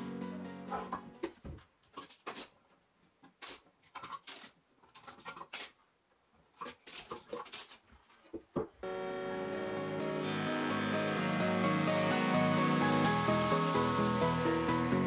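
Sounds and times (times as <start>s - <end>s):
metal clamps clicking and clinking: 3.3s - 5.8s.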